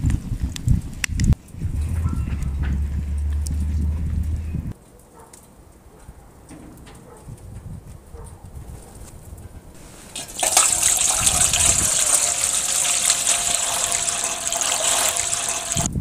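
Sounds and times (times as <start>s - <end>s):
water pouring into a pot: 9.8s - 16.0s.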